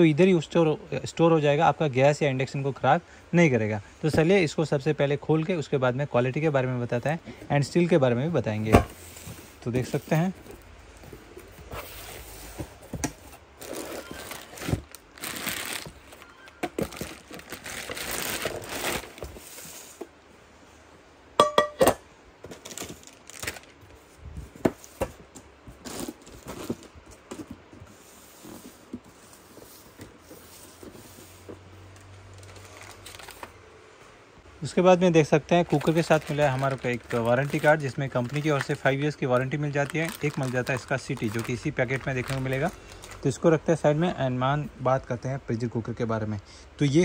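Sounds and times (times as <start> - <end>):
cardboard and plastic rustling: 6.9 - 20.2, 22.4 - 33.6, 35.5 - 43.5
steel pot ringing clink: 21.4 - 21.9.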